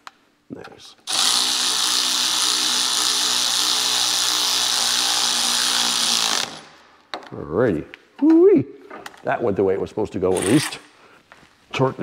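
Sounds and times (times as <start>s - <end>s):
cordless power tool running: 1.1s - 6.8s.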